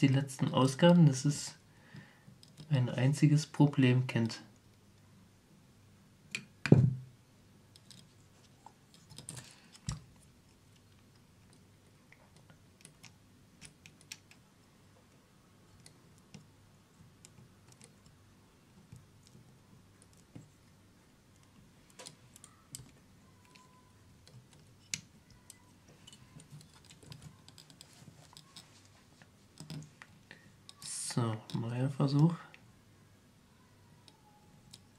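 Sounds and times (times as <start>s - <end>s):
plastic parts clicking and tapping: 21.4s - 31.6s.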